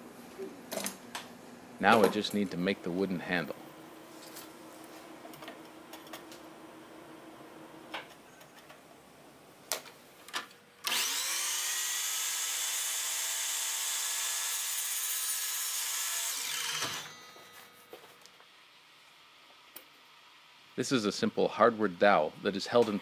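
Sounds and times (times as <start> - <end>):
miter saw whining: 10.8 - 17.6.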